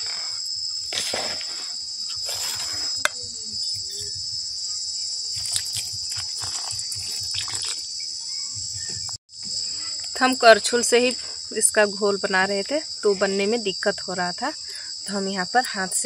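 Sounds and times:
crickets chirring: 0:00.0 - 0:16.0
water pouring into bowl: 0:05.3 - 0:07.9.

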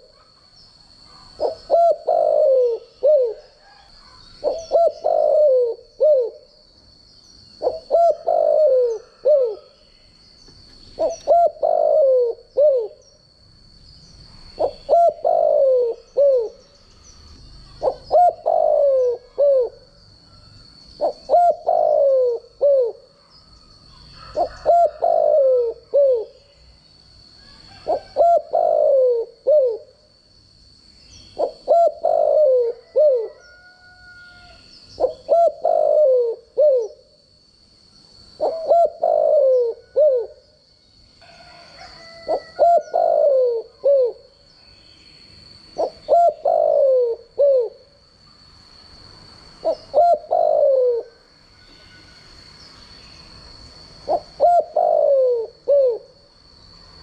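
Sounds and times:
dove cooing: 0:01.0 - 0:06.6, 0:07.6 - 0:09.8, 0:10.9 - 0:13.1, 0:14.3 - 0:16.6, 0:17.6 - 0:20.0, 0:21.0 - 0:23.3, 0:24.2 - 0:26.5, 0:27.4 - 0:30.0, 0:31.3 - 0:37.2, 0:38.4 - 0:40.5, 0:41.5 - 0:44.3, 0:45.7 - 0:48.0, 0:49.6 - 0:51.2, 0:54.0 - 0:56.2.

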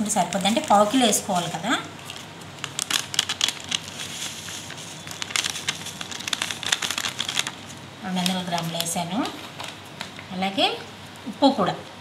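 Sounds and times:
plastic packet crinkling: 0:00.2 - 0:10.2
powder shaken from packet: 0:02.8 - 0:07.7.

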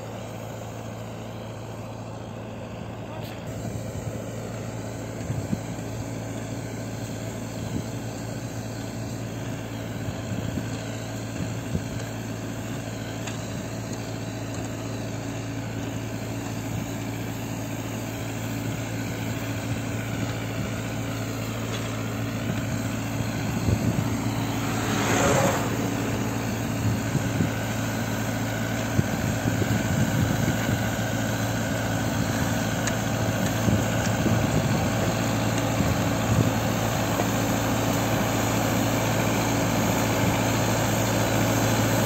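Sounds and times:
line-marking machine engine droning: 0:00.0 - 0:42.0.

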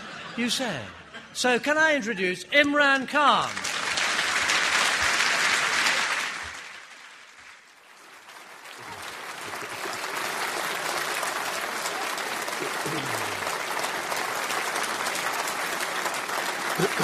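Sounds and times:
audience applauding: 0:03.4 - 0:17.0.

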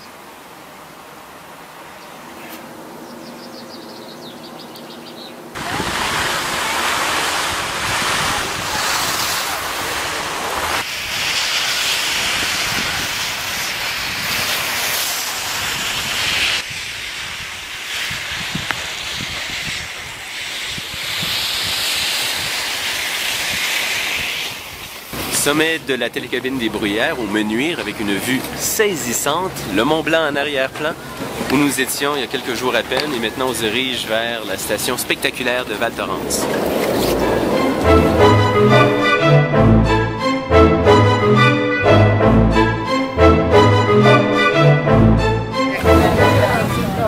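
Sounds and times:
wind on microphone: 0:05.6 - 0:25.0, 0:35.7 - 0:39.0
skis hissing over snow: 0:05.6 - 0:39.2.

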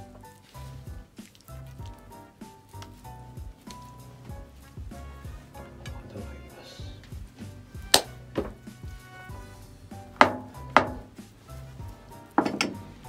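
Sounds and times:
soft background music: 0:00.0 - 0:13.0
knocks on wooden counter: 0:12.4 - 0:12.8.

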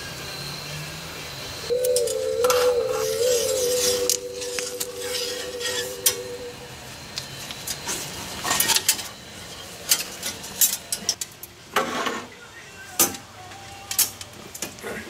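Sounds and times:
faint steady hum: 0:01.7 - 0:07.3.

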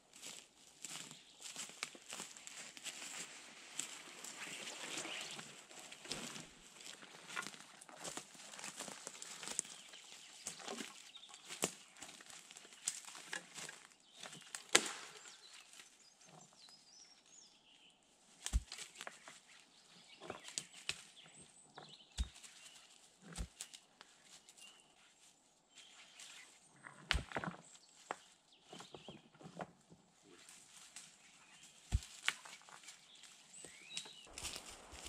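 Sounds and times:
dry leaves and moss rustling: 0:00.0 - 0:35.0
twigs snapping: 0:10.4 - 0:15.8, 0:18.4 - 0:19.3, 0:23.3 - 0:23.8, 0:31.8 - 0:33.0, 0:33.8 - 0:35.0.

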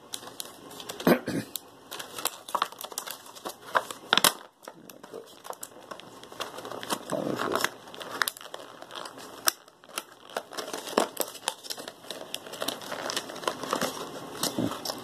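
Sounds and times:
plastic packaging crinkling: 0:00.0 - 0:15.0
sharp clicks and crackles: 0:00.0 - 0:15.0.

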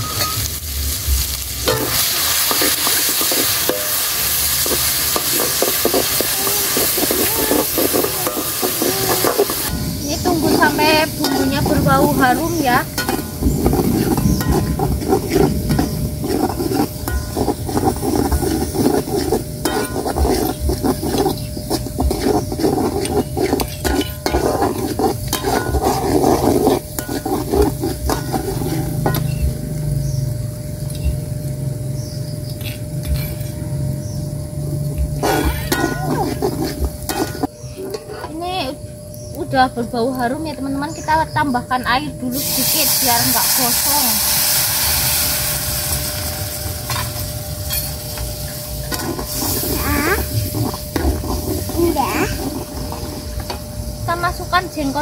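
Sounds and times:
metal spatula scraping a wok: 0:00.0 - 0:30.2, 0:32.6 - 0:33.6, 0:35.2 - 0:38.4, 0:42.3 - 0:53.6
oil sizzling: 0:00.0 - 0:55.0.

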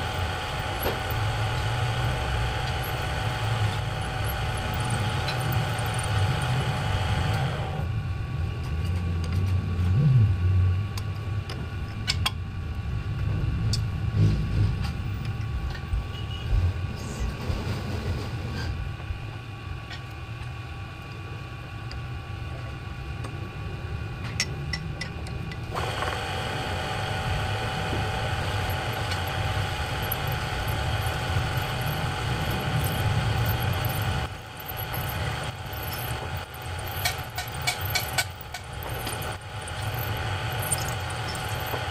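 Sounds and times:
drill press motor whine: 0:00.0 - 0:08.2, 0:18.8 - 0:41.9.

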